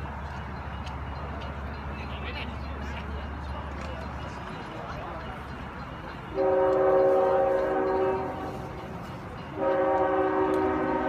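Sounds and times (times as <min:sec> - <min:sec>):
train horn blasts: 0:06.3 - 0:08.7, 0:09.5 - 0:11.0.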